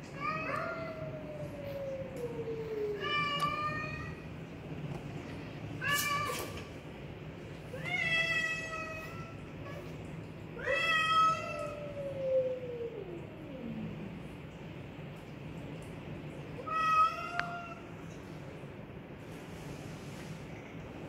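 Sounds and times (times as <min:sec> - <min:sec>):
cats yowling: 0:00.0 - 0:04.3, 0:10.6 - 0:14.2, 0:16.6 - 0:17.9.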